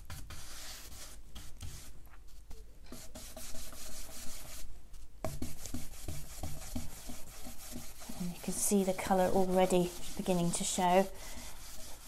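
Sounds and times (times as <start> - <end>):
brush scrubbing wood: 2.9 - 4.7, 5.3 - 12.0.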